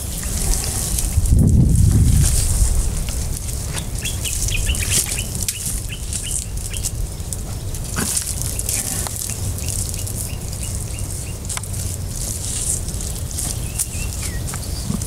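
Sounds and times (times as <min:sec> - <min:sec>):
low rumble: 0:00.0 - 0:15.0
bird chirping: 0:03.7 - 0:11.5, 0:13.0 - 0:15.0.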